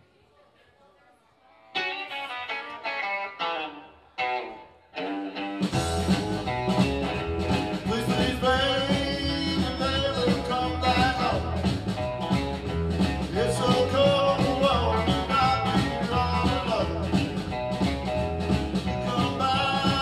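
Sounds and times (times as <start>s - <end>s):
electric guitar picked phrases: 1.6s - 20.0s
drums: 5.0s - 20.0s
bass: 5.6s - 20.0s.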